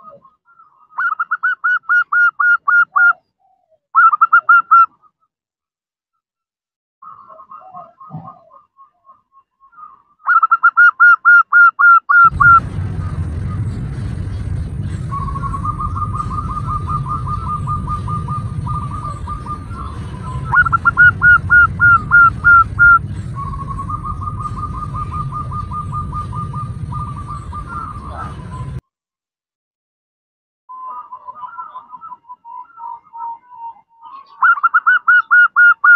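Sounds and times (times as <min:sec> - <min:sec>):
dove cooing: 0:07.1 - 0:08.7, 0:15.2 - 0:28.8
low background rumble: 0:12.2 - 0:28.8.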